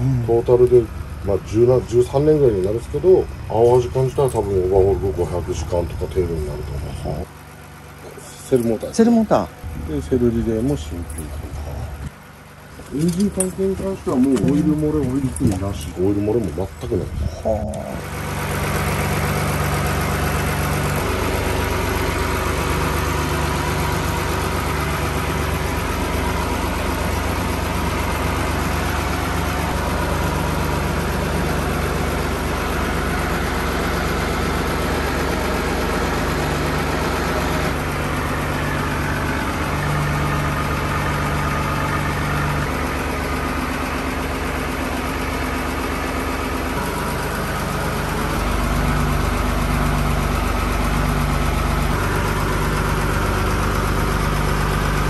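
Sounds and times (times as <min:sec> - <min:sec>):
boat engine idling: 0:00.0 - 0:55.0.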